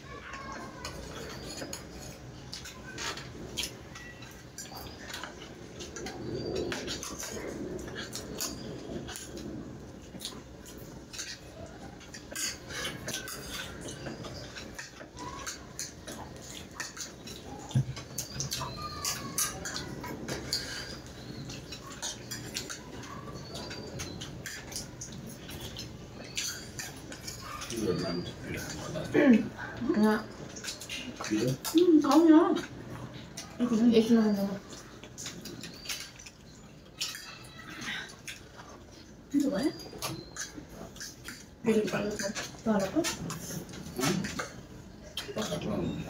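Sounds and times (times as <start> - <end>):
people chewing and slurping: 0.0 - 46.0
forks scraping on ceramic plates: 0.2 - 9.4, 10.2 - 29.2.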